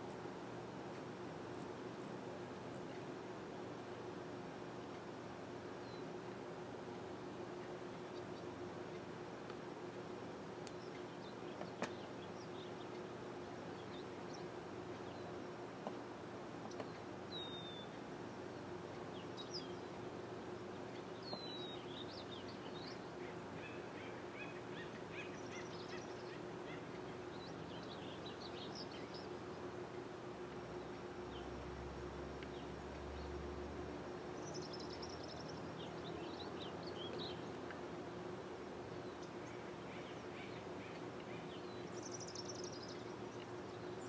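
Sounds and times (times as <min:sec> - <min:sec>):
faint steady hum: 0:00.0 - 0:44.0
small birds chirping: 0:10.7 - 0:15.8, 0:16.6 - 0:29.7, 0:32.3 - 0:37.9, 0:38.8 - 0:44.0.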